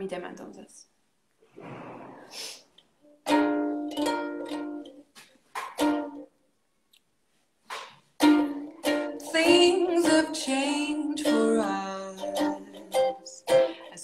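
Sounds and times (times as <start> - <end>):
ukulele strumming: 3.1 - 6.3, 7.7 - 14.0.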